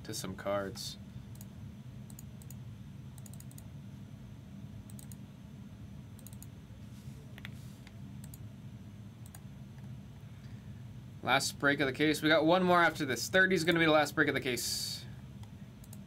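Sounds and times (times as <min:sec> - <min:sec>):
steady low hum: 0:00.0 - 0:16.0
keyboard typing clicks: 0:03.2 - 0:03.7, 0:04.9 - 0:05.2, 0:06.2 - 0:06.5, 0:08.2 - 0:08.4, 0:09.2 - 0:09.4.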